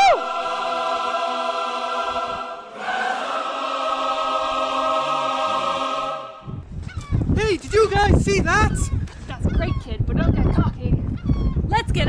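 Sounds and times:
choir singing held chords: 0.0s - 6.6s.

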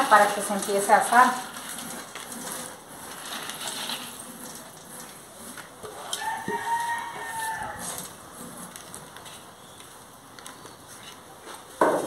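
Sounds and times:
seeds rustling and scraping: 0.0s - 9.9s
rooster crowing: 6.0s - 8.2s.

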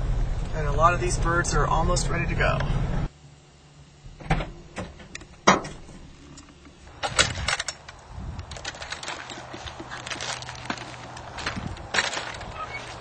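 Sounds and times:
cage door clanking and rattling: 7.0s - 7.9s.

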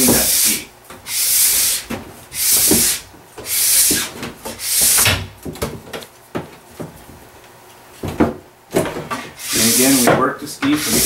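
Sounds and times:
wax scraper hissing on ski: 0.1s - 1.8s, 9.4s - 10.1s.

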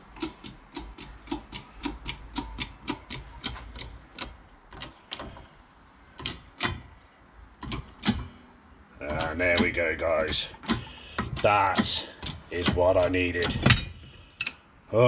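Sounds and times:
hydraulic press pump clicking: 9.0s - 14.6s.

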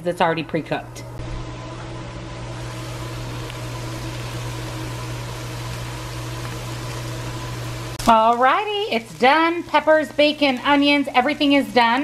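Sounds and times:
low hum: 0.8s - 8.1s
vegetables sizzling in a pan: 1.2s - 12.0s.

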